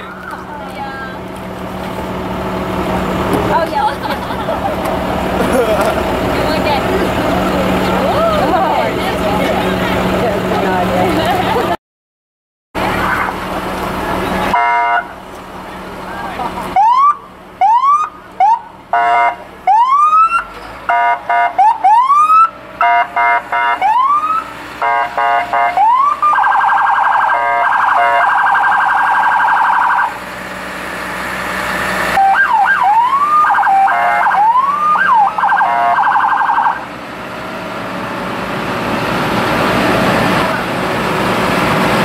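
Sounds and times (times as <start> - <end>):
horn-like siren blasts: 14.6 - 15.2, 16.8 - 30.2, 32.1 - 36.8
electronic siren whooping and warbling: 25.8 - 30.1, 32.2 - 36.8.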